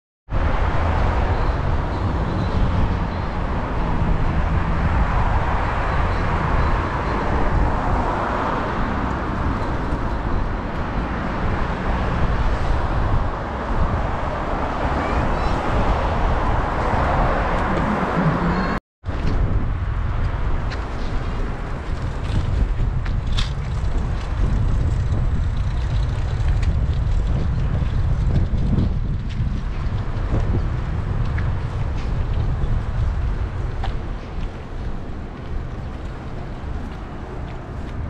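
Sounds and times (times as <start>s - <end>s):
cars driving past: 0.3s - 18.8s
low traffic rumble: 0.3s - 38.0s.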